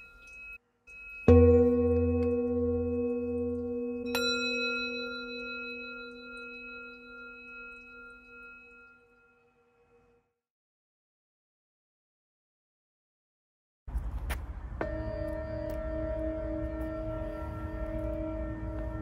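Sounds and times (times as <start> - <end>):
singing bowls ringing: 0.0 - 10.2, 14.8 - 19.0.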